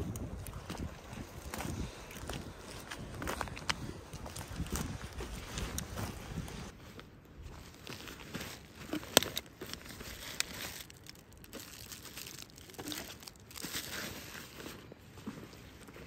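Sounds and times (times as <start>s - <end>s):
footsteps crunching dry leaves: 7.5s - 14.6s.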